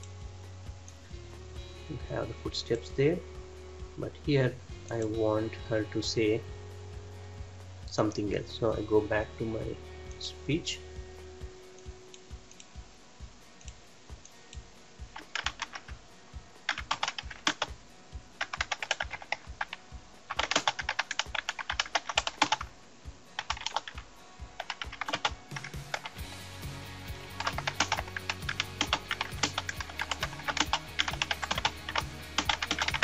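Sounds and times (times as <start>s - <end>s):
typing on computer keyboard: 15.2s - 16.0s, 16.7s - 17.8s, 18.4s - 22.7s, 23.4s - 24.0s, 24.6s - 26.2s, 27.4s - 33.0s.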